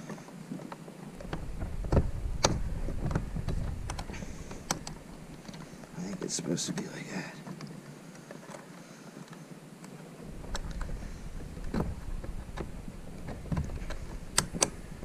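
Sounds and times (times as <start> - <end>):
wind rumble on microphone: 1.1 - 6.4, 10.2 - 15.0
knocks and clicks: 1.2 - 6.0, 10.3 - 15.0.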